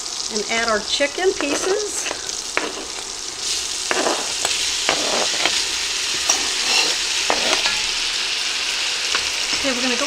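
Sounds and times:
chicken sizzling in hot oil: 0.0 - 10.0
knife scraping a cutting board: 1.4 - 3.1, 3.9 - 5.6, 6.3 - 7.9.

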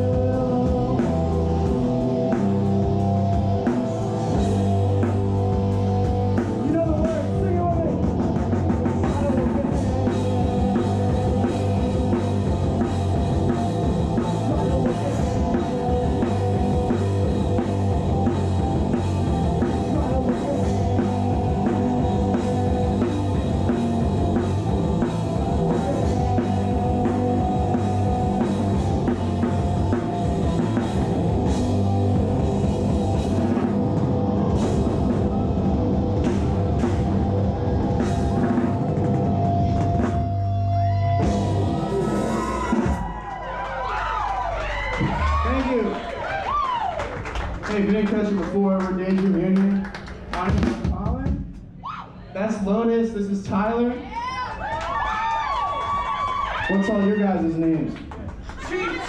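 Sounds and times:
drums keeping steady beat: 0.0 - 43.3, 44.8 - 46.0, 46.7 - 51.8
rock band playing: 0.0 - 46.1.

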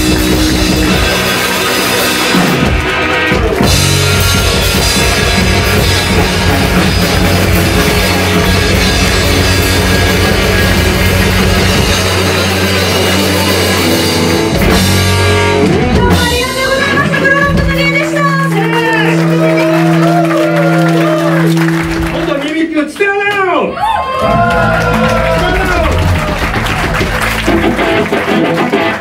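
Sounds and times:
sustained low bass notes: 0.0 - 22.3
live rock band playing: 0.0 - 22.4, 24.2 - 29.0.

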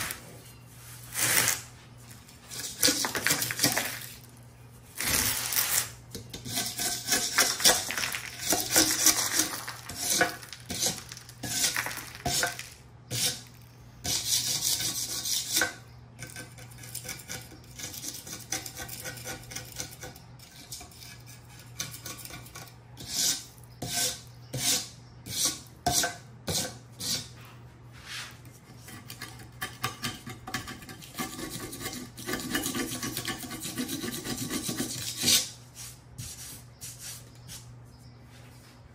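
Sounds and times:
metal scraper scraping shelf: 0.0 - 1.7, 2.4 - 4.2, 4.9 - 37.2
chips clinking and rattling: 7.2 - 12.8.

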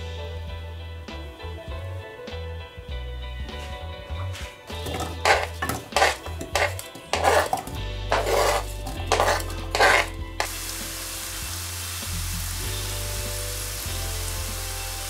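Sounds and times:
apple pieces scraped off board: 4.7 - 10.5
apple pieces clattering into pan: 4.7 - 10.8
apples sizzling in pan: 4.8 - 15.0.

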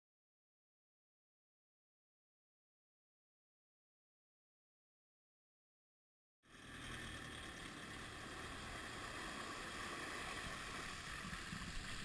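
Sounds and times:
water rushing off boat: 7.6 - 12.0.

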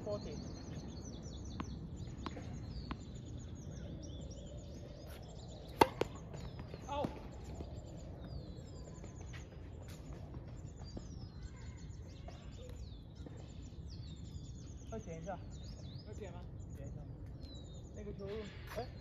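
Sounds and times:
birds chirping: 0.0 - 19.0
tennis ball bouncing on hard court: 1.5 - 3.2, 5.7 - 7.2
racket striking ball: 5.7 - 6.6.

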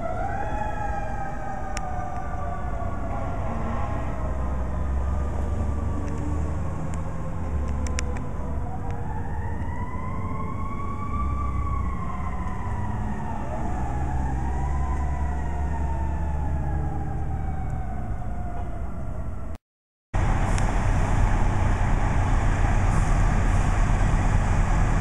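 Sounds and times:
fire engine sirens wailing: 0.0 - 19.6, 20.2 - 25.0
steady low rumble: 20.2 - 25.0.

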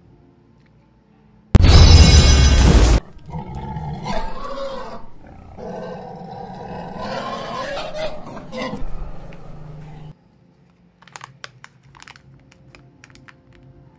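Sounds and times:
tiger growling: 3.2 - 10.1.

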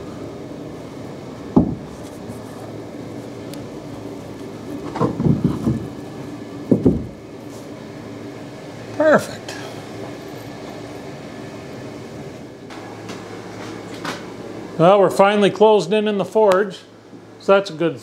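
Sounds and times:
steady low hum: 0.0 - 18.0
wooden knocks and thumps: 1.6 - 1.9, 4.8 - 5.9, 6.7 - 7.2.

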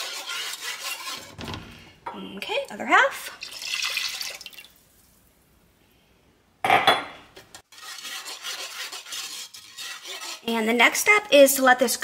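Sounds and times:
whisk scraping pot bottom: 0.0 - 1.5, 7.4 - 11.2
milk pouring into saucepan: 3.1 - 5.2.

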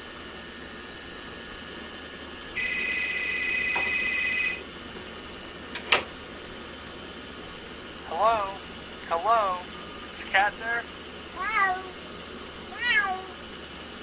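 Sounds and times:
telephone ringer trilling: 2.6 - 4.6.

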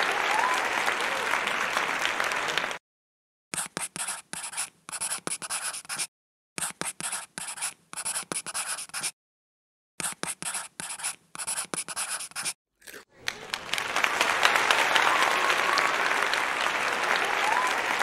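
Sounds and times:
pencil writing on paper: 3.5 - 9.2, 10.0 - 12.6
crowd laughing: 13.2 - 18.0.

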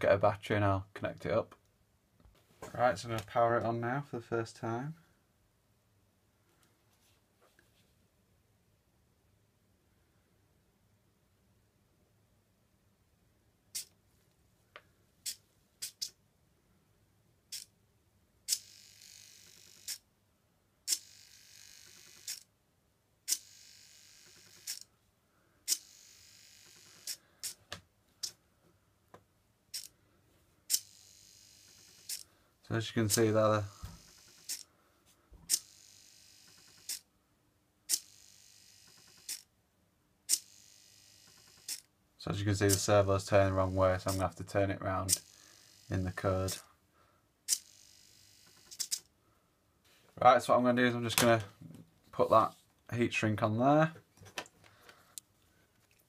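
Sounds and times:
servo clicking: 33.8 - 34.6, 41.3 - 41.9, 48.4 - 49.1
motor buzzing whine: 40.5 - 41.8, 45.2 - 45.9, 47.6 - 48.9.

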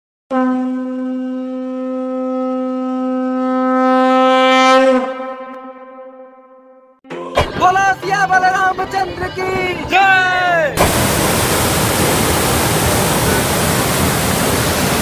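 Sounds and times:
conch shell blown: 0.3 - 7.0.

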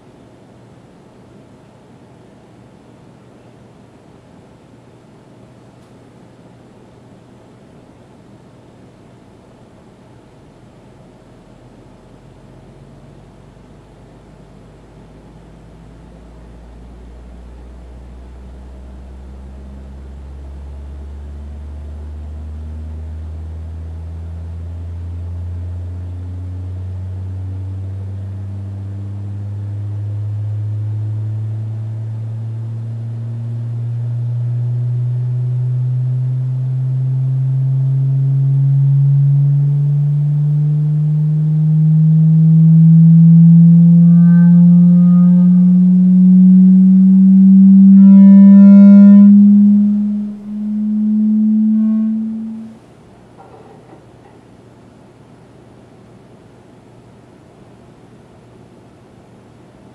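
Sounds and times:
loudspeaker tone sweeping upward: 16.3 - 52.8.

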